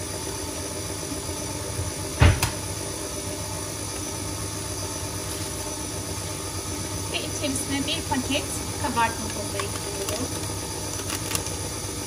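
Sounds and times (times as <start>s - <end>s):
stand mixer running: 0.0s - 12.0s
loud knock: 2.2s - 2.6s.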